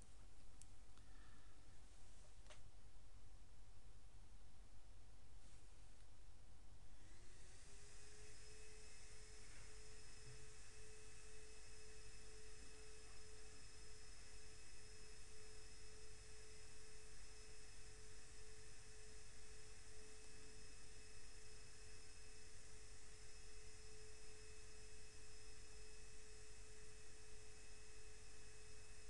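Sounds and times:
background hiss: 0.0 - 29.0
low hum: 0.0 - 29.0
steady pure tone: 6.2 - 29.0.

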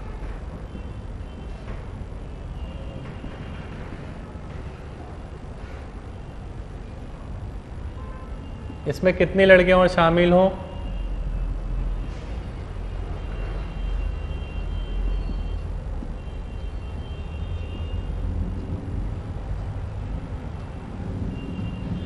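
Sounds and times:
low room rumble: 10.8 - 22.0.

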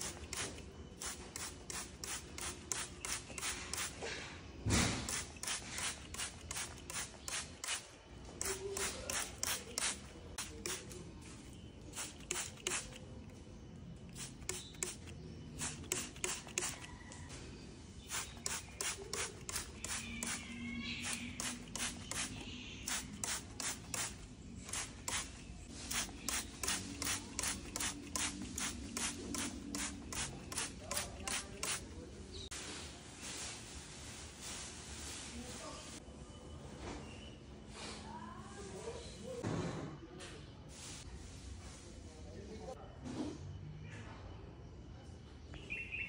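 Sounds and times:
spray bottle squirts: 0.0 - 4.0, 4.8 - 13.2, 14.1 - 16.9, 18.0 - 31.9.

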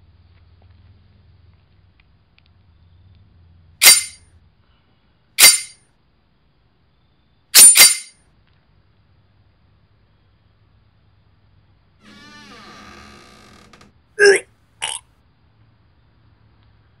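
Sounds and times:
metallic knife stab hits: 3.8 - 4.2, 5.4 - 5.8, 7.6 - 8.1.

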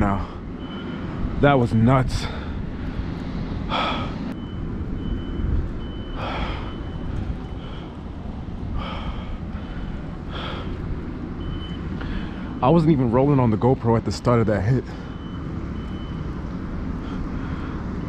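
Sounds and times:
steady low rumble: 0.0 - 18.0
man breathing hard: 2.2 - 4.4, 6.0 - 11.0, 11.9 - 12.6, 16.9 - 18.0.

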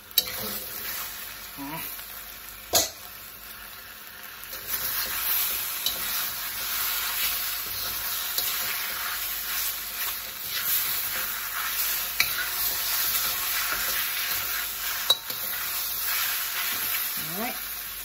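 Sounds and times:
noodles sizzling in a wok: 0.0 - 18.0
metal spatula scraping: 0.2 - 1.0, 4.5 - 17.0.

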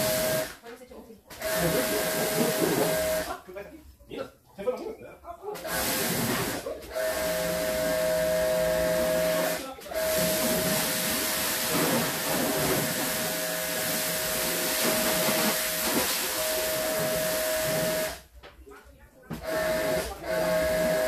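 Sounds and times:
high-pressure water jet hissing: 0.0 - 0.5, 1.4 - 3.3, 5.6 - 7.9, 9.3 - 18.2
pressure washer pump whining: 0.0 - 0.5, 1.4 - 3.3, 5.6 - 18.2, 19.4 - 21.0.

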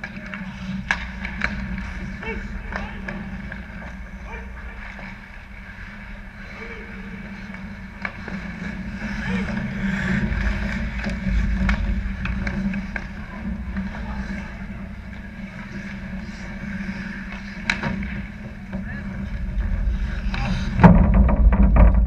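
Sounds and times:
players' voices: 0.0 - 20.9
skates scraping on ice: 0.0 - 20.9
hockey sticks clacking: 0.0 - 22.0
loud knock and clattering: 20.7 - 22.0.

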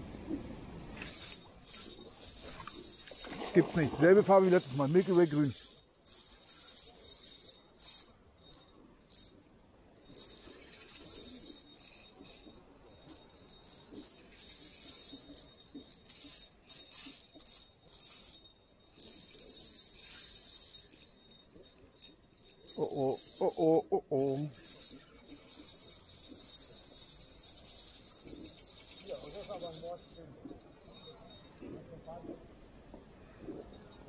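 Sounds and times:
fishing reel whirring: 1.1 - 32.2, 33.4 - 34.0.

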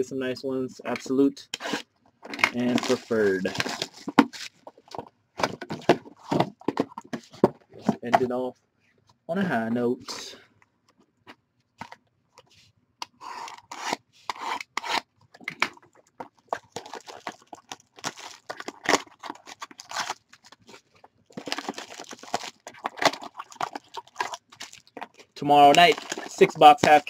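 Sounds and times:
shrink wrap tearing and crackling: 16.5 - 27.0.

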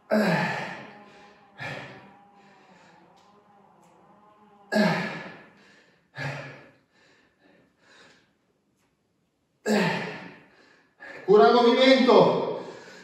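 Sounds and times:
faint breaths: 0.0 - 4.0, 4.7 - 8.5, 9.7 - 11.3, 12.5 - 13.0.

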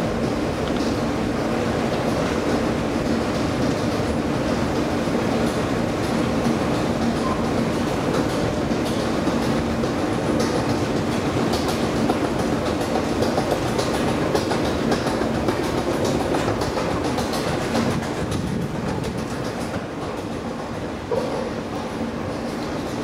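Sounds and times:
escalator mechanical hum: 0.0 - 23.0.

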